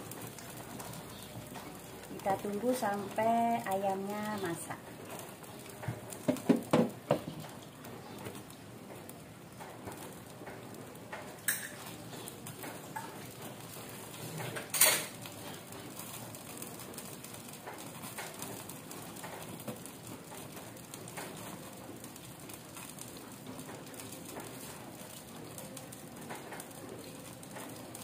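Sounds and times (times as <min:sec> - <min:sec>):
pan bubbling hiss: 0:00.0 - 0:28.0.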